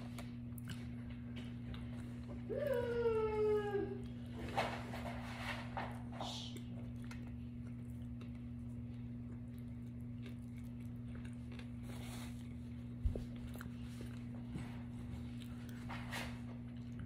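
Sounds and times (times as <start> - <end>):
person chewing food: 0.0 - 2.5, 6.4 - 17.0.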